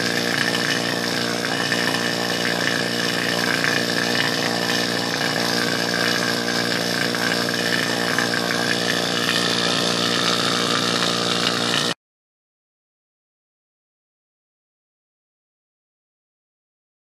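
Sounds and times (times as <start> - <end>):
vacuum pump running: 0.0 - 12.0.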